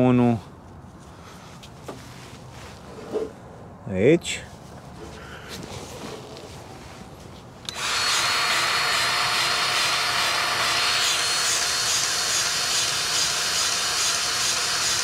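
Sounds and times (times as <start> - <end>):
grease gun motor pumping: 7.7 - 15.0.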